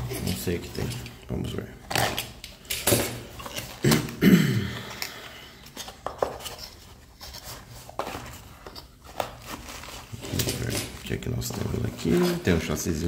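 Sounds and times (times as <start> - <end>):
cardboard scraping and rustling: 5.7 - 12.6.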